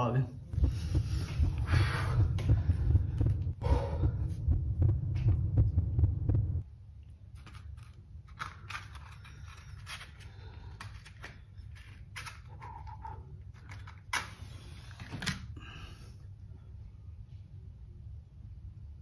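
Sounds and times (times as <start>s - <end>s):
low throbbing rumble: 0.4s - 6.7s.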